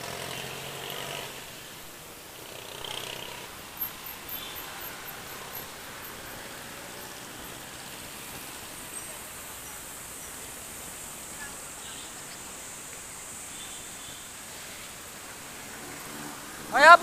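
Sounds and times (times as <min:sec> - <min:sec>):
passing vehicles hissing: 0:00.0 - 0:17.0
wind: 0:00.0 - 0:17.0.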